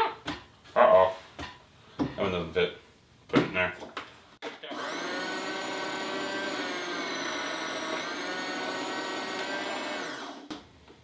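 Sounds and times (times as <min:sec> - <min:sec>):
food processor motor whining: 0:04.7 - 0:10.6.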